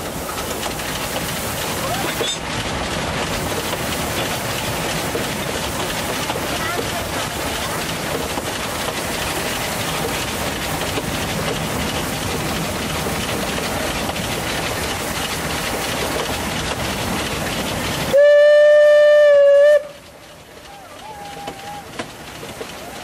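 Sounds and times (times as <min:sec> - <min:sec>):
train carriage running on rails: 0:00.0 - 0:23.0
steam whistle blast: 0:18.1 - 0:20.0.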